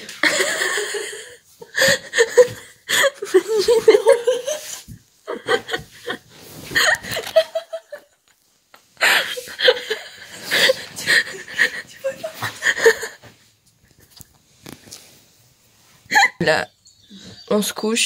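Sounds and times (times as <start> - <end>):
young woman laughing: 0.2 - 8.2, 9.0 - 14.3, 16.1 - 16.5.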